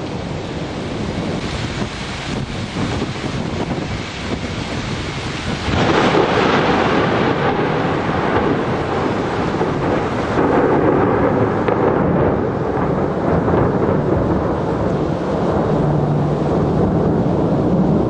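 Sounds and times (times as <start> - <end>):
thunder rumbling: 0.0 - 18.0.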